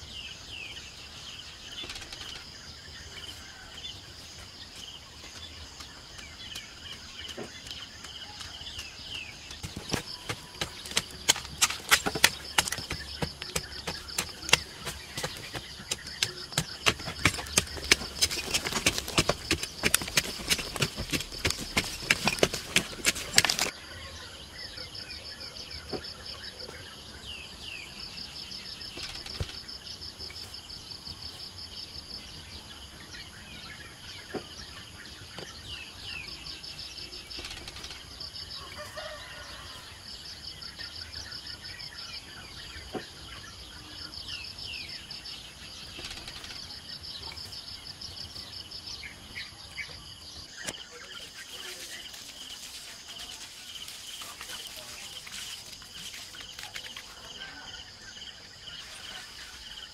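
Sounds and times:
bird chirps: 0.0 - 31.2
insect trill: 5.4 - 59.9
hoe chopping into dirt: 9.5 - 23.7.

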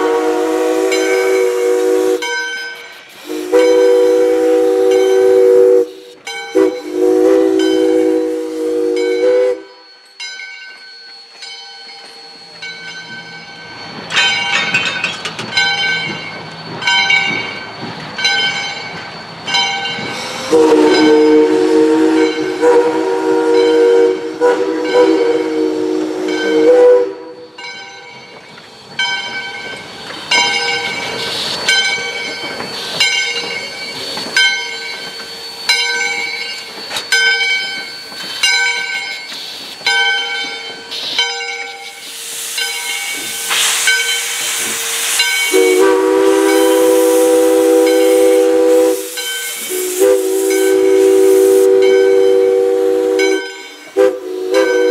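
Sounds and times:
steam locomotive whistle: 0.0 - 10.0, 19.9 - 27.8, 41.0 - 54.9
steam hissing: 0.0 - 10.1, 15.4 - 54.9
locomotive bell ringing: 0.0 - 54.9.

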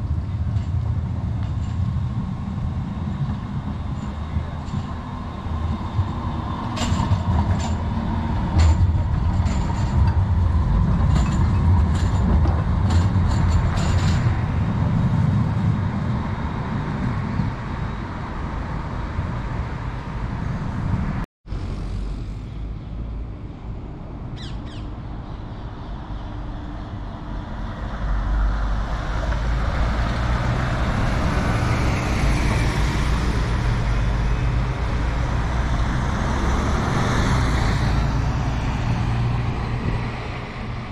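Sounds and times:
tram rolling past: 0.0 - 24.2, 25.0 - 40.9
heavy vehicle engine: 0.0 - 24.3, 25.1 - 40.9
road traffic: 0.0 - 40.9.

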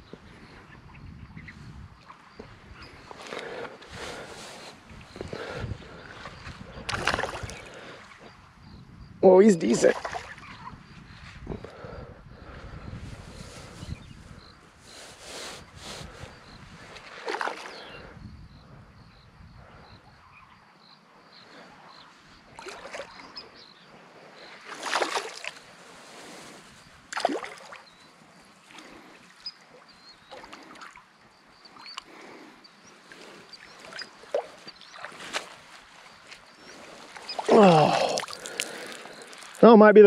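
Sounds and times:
fish splashing at water surface: 24.7 - 25.6, 27.2 - 27.9, 37.1 - 39.6.

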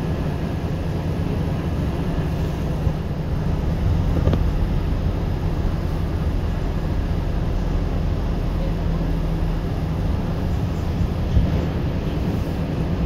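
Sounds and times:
wind buffeting microphone: 0.0 - 8.4, 9.0 - 13.0.

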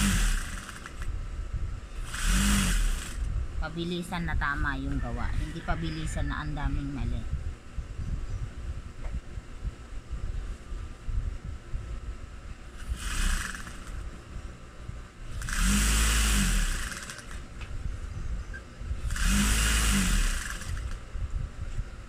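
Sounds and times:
sewing machine stitching: 0.0 - 1.0, 2.0 - 3.2, 12.8 - 14.0, 15.4 - 17.4, 19.1 - 21.0.

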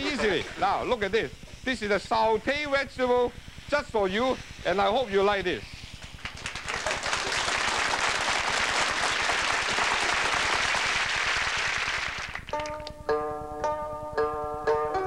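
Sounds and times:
audience applauding: 6.2 - 12.9
music: 12.5 - 15.0.

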